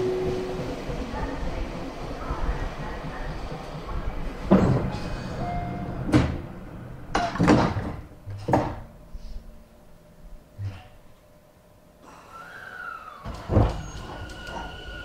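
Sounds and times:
train doors knocking and swishing: 0.0s - 8.9s.

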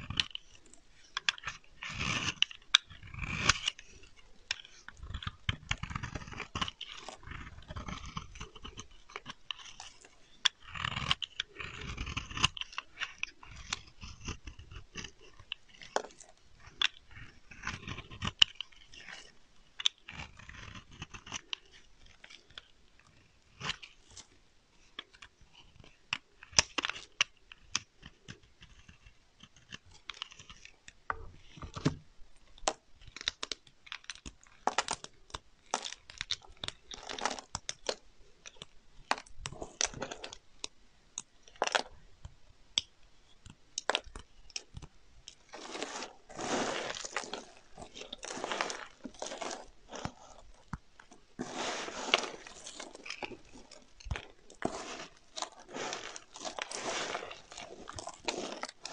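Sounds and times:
blade shaving soap: 0.0s - 31.8s, 32.4s - 40.7s, 42.8s - 58.9s
soap shavings crackling and crunching: 0.0s - 31.8s, 32.4s - 58.9s.

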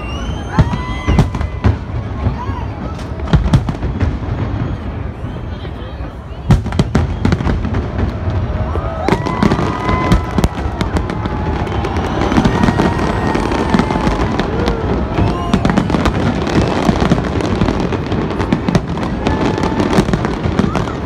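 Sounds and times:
firework bangs and crackles: 0.0s - 21.0s.

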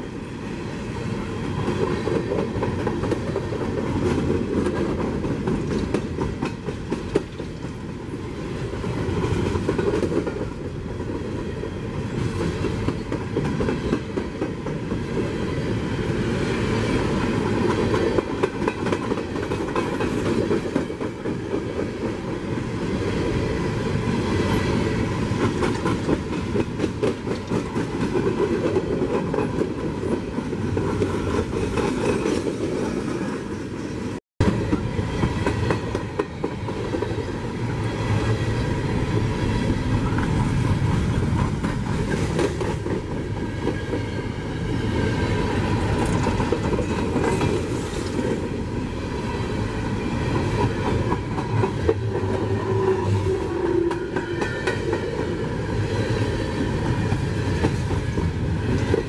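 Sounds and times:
train rumble: 0.0s - 59.0s
train wheels clicking over rail joints: 1.5s - 8.0s, 17.4s - 22.3s, 25.3s - 33.6s, 34.4s - 44.2s.

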